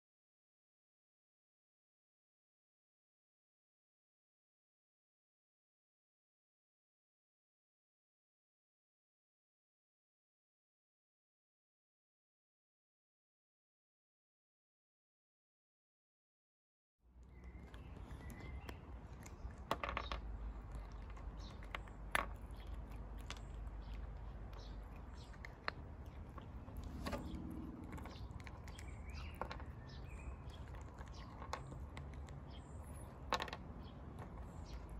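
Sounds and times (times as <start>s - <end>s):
low steady rumble: 17.4s - 34.9s.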